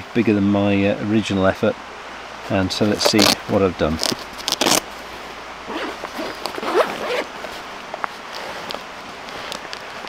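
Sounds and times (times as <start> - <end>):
pouch rustling and ticking: 2.9 - 4.8, 5.7 - 8.8
zipper pulled open: 3.0 - 3.4, 4.0 - 4.8, 5.7 - 7.3.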